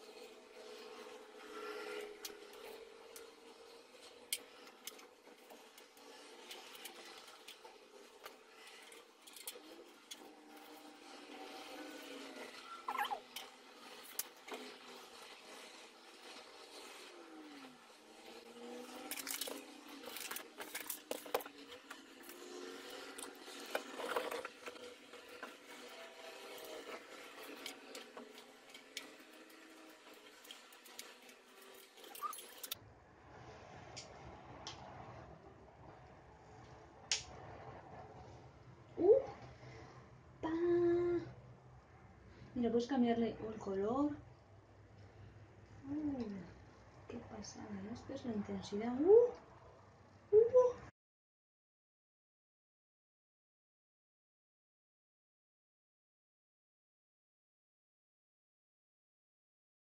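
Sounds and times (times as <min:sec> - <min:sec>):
plastic parts clicking and knocking: 0:19.0 - 0:22.4.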